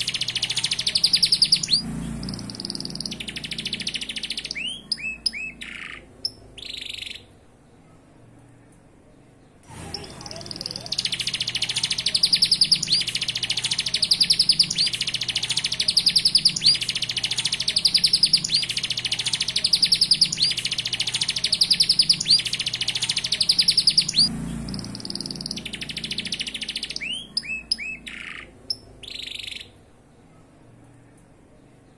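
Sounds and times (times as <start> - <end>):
canary singing rapid trills: 0.0 - 7.3, 9.8 - 29.8.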